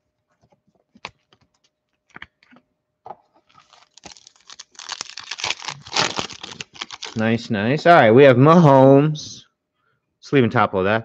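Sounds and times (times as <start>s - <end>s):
foil wrappers crinkling: 3.5s - 7.3s.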